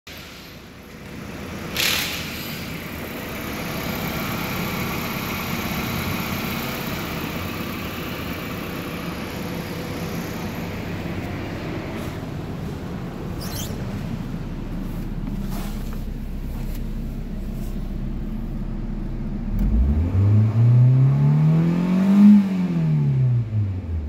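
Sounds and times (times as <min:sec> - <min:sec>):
car engine idling: 0:00.1 - 0:20.5.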